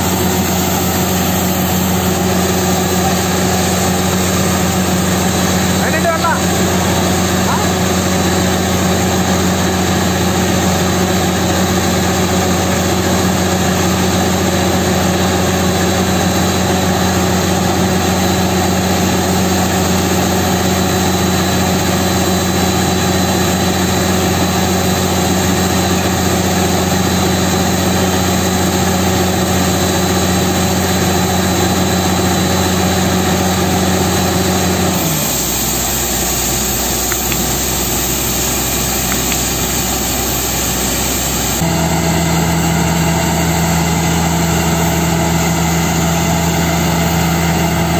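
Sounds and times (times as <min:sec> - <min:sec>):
drilling rig engine running: 0:00.0 - 0:47.9
compressed air blowing spray: 0:34.9 - 0:41.6.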